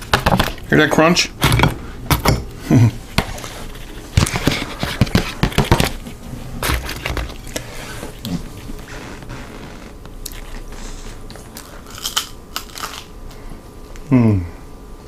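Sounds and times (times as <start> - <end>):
crunching of crisp food: 6.6 - 13.4.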